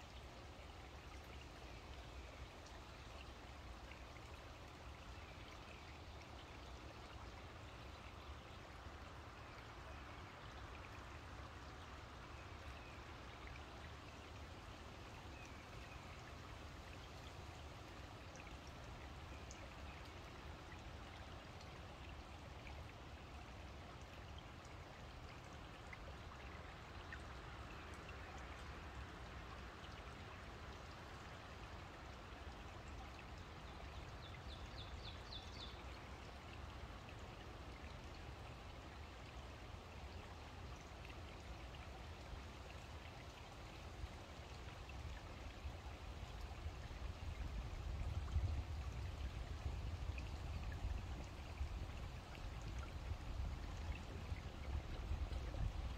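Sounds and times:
stream trickling over stones: 0.0s - 55.9s.

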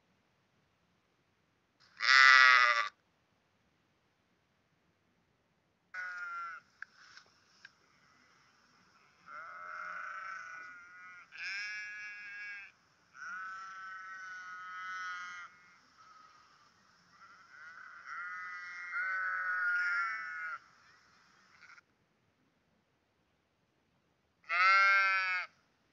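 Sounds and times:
sheep bleating: 2.0s - 2.9s, 6.0s - 6.6s, 9.2s - 20.6s, 24.4s - 25.5s.

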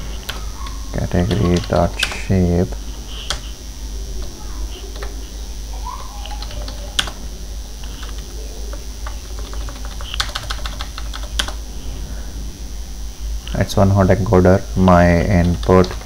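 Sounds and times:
keyboard typing: 0.0s - 3.6s, 4.2s - 5.3s, 6.0s - 11.6s, 15.3s - 16.0s.

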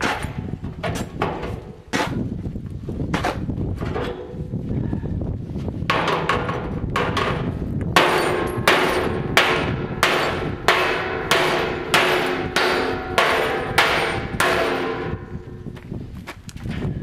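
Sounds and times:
tomahawk clanging on steel drum: 8.0s - 15.6s.

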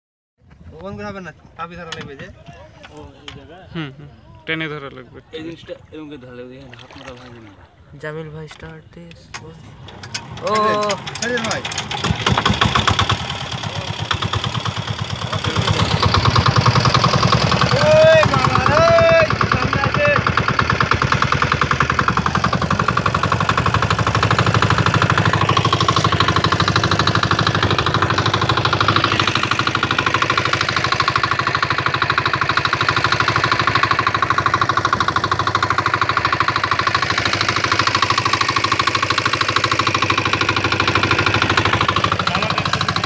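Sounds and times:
diesel boat engine running: 0.5s - 43.0s.

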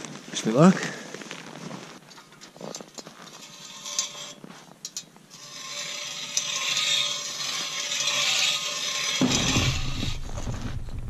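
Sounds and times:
footsteps in snow: 0.0s - 2.1s
hand ice auger scraping ice: 2.5s - 10.5s.

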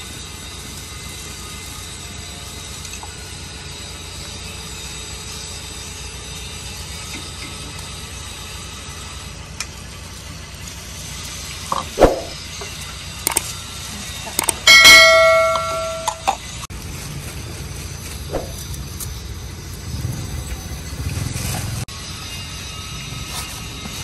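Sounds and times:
metal utensils clinking on pots: 14.3s - 16.5s
loud ringing clang: 14.5s - 16.4s.

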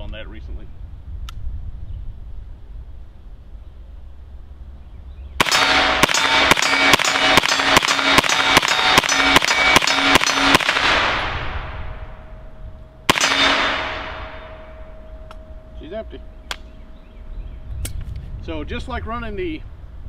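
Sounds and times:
rifle gunshots with echo: 5.4s - 16.9s.

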